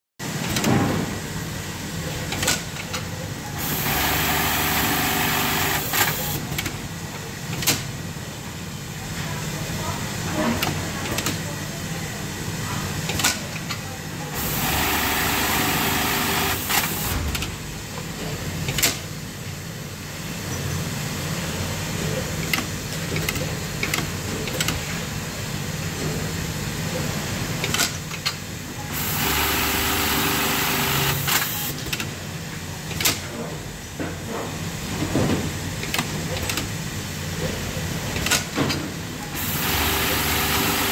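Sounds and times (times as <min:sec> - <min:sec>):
sewing machine stitching: 0:03.6 - 0:06.4, 0:14.4 - 0:17.2, 0:28.9 - 0:31.7, 0:39.3 - 0:40.9.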